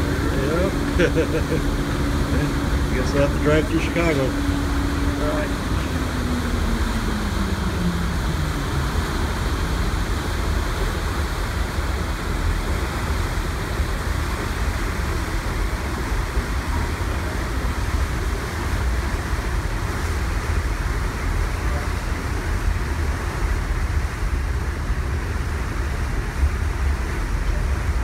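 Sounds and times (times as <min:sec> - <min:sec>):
deep ship engine rumble: 0:00.0 - 0:28.0
propeller wash rushing: 0:00.0 - 0:28.0.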